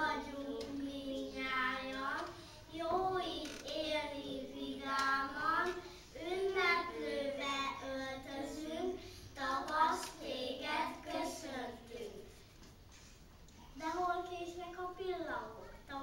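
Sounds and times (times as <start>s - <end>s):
children singing unaccompanied: 0.0s - 8.7s.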